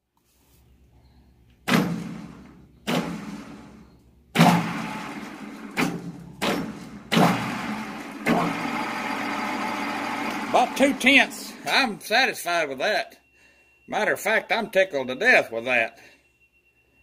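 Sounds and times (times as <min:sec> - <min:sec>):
lathe motor humming: 0:07.4 - 0:11.7.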